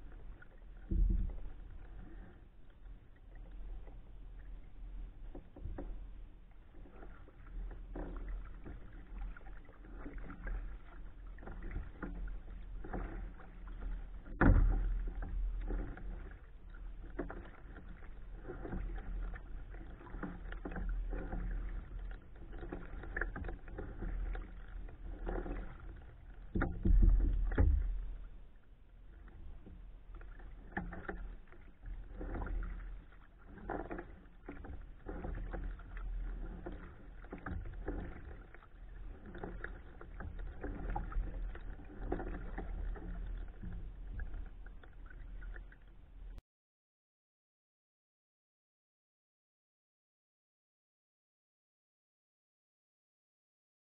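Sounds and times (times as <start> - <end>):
kayak paddle splashing in water: 0.0 - 46.4.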